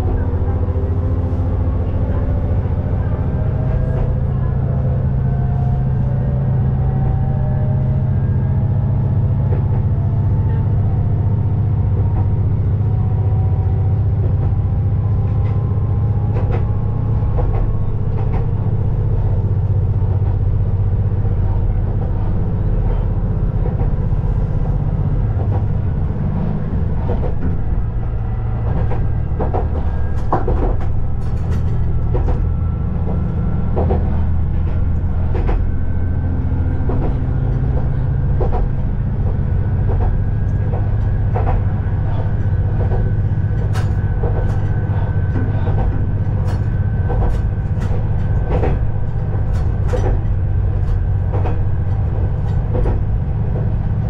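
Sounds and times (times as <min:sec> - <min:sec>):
diesel engine drone with whine: 0:00.0 - 0:54.0.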